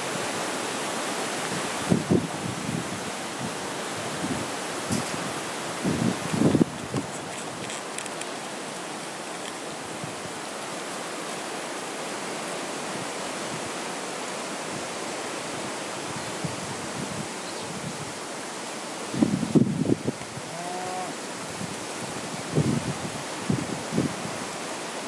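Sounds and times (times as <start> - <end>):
wind rushing over microphone: 1.4 - 7.7, 15.5 - 18.2, 19.0 - 20.6, 21.4 - 24.6.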